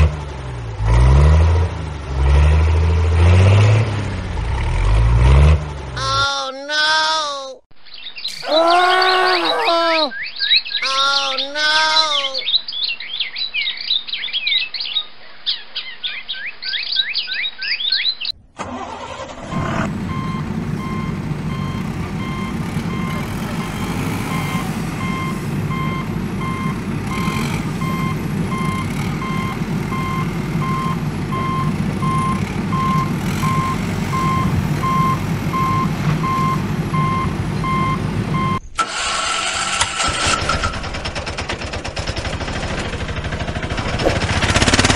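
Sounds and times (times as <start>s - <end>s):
small birds chirping: 7.8s - 18.5s
truck engine running: 18.6s - 44.9s
reversing alarm beeping: 19.5s - 38.6s.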